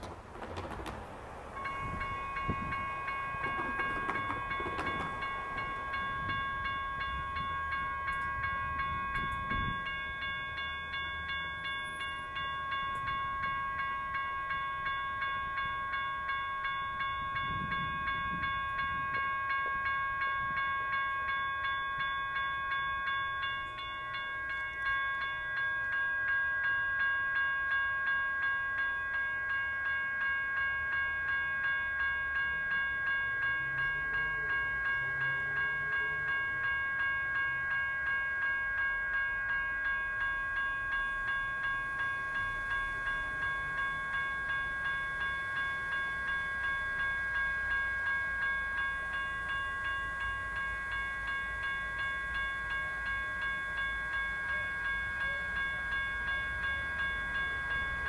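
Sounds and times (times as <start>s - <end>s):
railroad crossing bells ringing: 0.0s - 58.0s.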